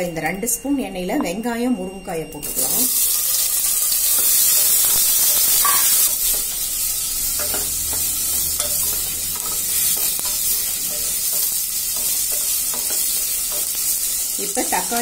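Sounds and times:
food sizzling in hot oil: 2.4 - 15.0
spatula scraping and knocking pan: 7.4 - 13.9.

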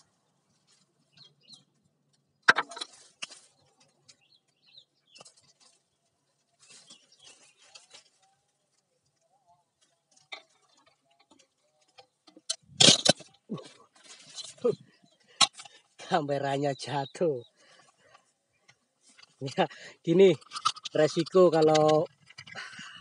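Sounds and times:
dry leaves crackling and rustling: 5.2 - 8.8.

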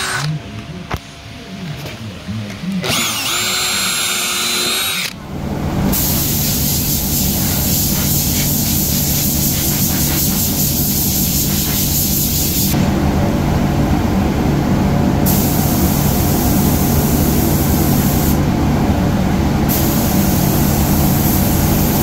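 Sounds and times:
machine humming and hissing: 0.0 - 22.0
power tool whining: 2.8 - 5.2.

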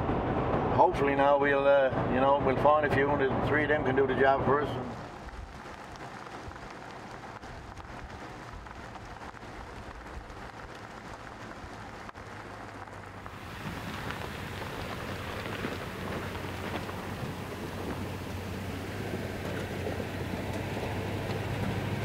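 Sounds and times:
road and tyre noise inside vehicle: 0.0 - 22.0
pickup truck engine humming: 4.8 - 22.0.

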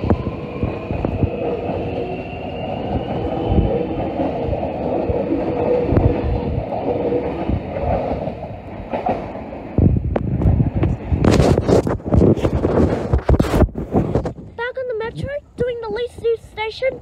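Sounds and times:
train wheels rumbling on rails: 0.0 - 16.9.

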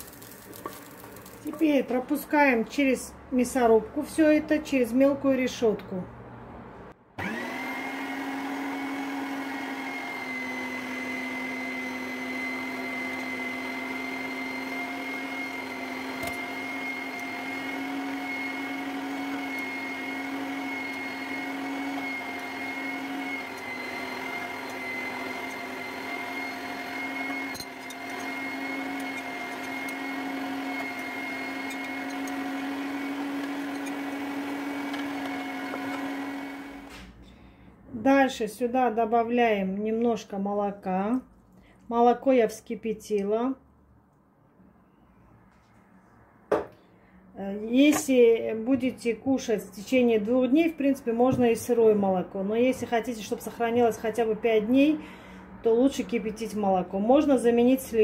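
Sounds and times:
meat grinder motor hum: 0.0 - 1.5, 7.2 - 37.0.

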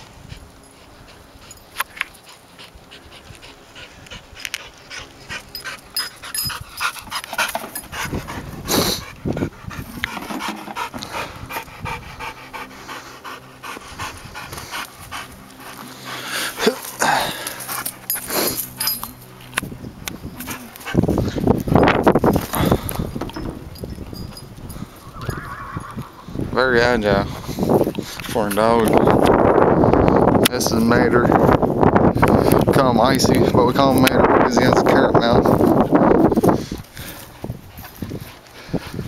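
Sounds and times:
dog panting: 0.1 - 19.2, 20.4 - 23.1, 35.6 - 39.0.

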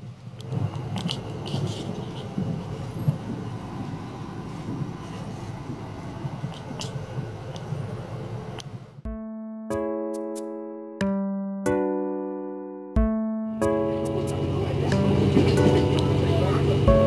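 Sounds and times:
train rumble inside coach: 0.0 - 9.1, 13.7 - 17.0.

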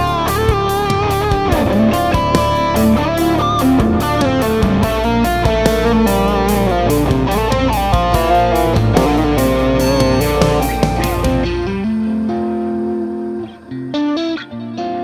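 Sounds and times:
drum beat: 0.0 - 11.8
bass: 0.0 - 13.7
overdriven electric guitar lead: 0.0 - 15.0.

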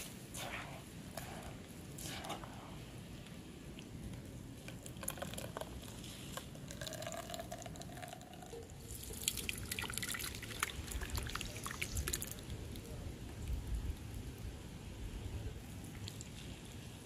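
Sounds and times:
juice dripping into bowl: 3.7 - 12.6.

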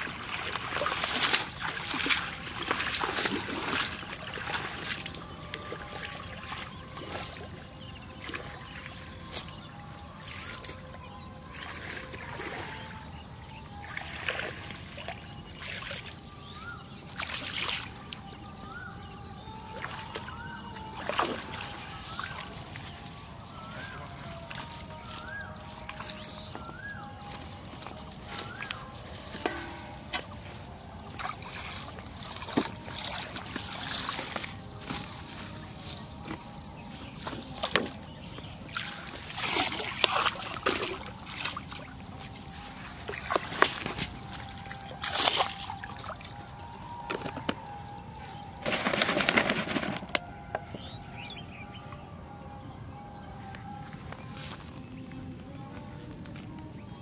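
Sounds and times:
muddy water splashing: 0.0 - 52.1
plastic bottles knocking on ground: 48.6 - 50.2
plastic sack rustling: 48.6 - 50.2.

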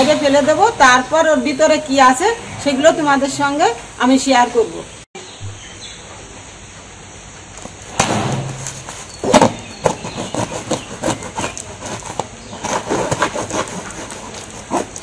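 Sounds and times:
knife cutting cardboard and tape: 7.6 - 15.0.

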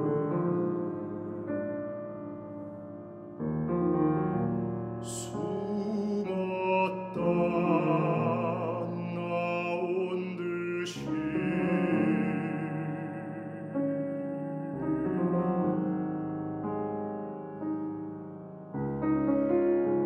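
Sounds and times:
piano accompaniment: 0.0 - 20.0
operatic baritone singing: 5.0 - 14.7.

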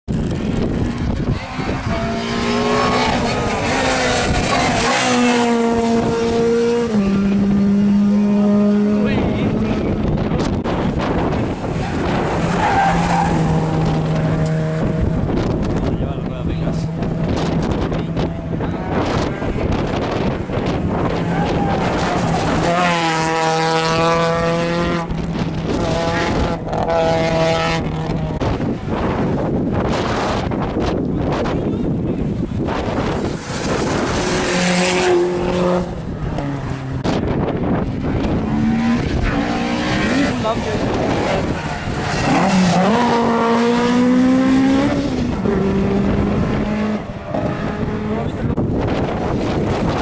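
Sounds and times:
race car engine running hard: 0.1 - 50.0.

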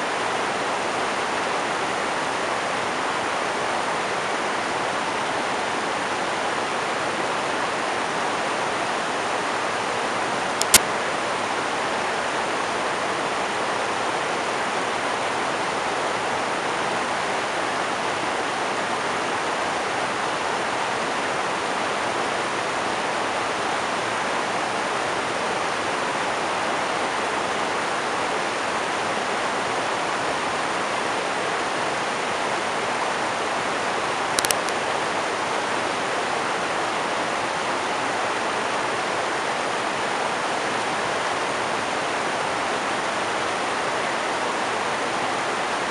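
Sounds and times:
river rapids rushing over rocks: 0.0 - 45.9
brief click: 10.6 - 10.9, 34.4 - 34.8.

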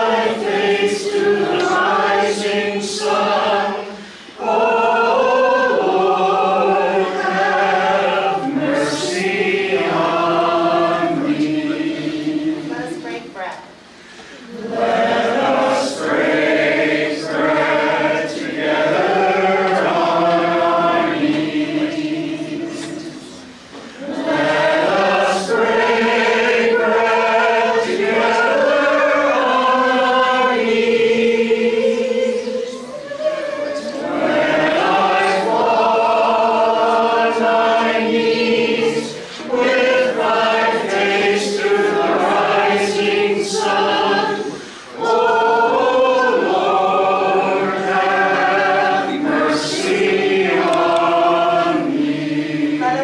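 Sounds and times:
group singing a hymn: 0.0 - 53.0.

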